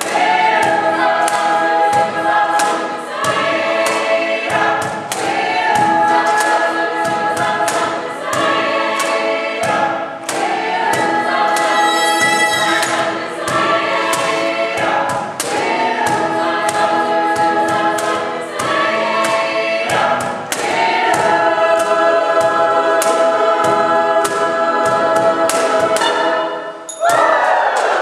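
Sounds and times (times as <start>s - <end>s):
cajon steady beat: 0.0s - 26.4s
mixed choir singing: 0.0s - 28.0s
piano accompaniment: 7.8s - 17.0s.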